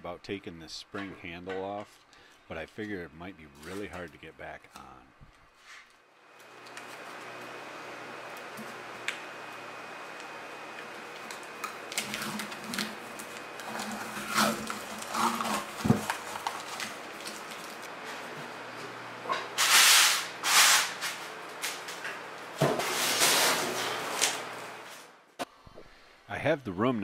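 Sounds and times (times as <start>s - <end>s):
handling ticks and crinkles: 14.6s - 17.9s.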